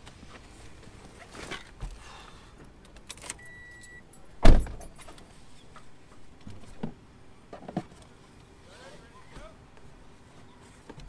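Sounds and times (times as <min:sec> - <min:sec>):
car keys jangling: 0:02.9 - 0:05.3
brief electronic beep: 0:03.4 - 0:04.1
car door slamming: 0:04.4 - 0:04.9.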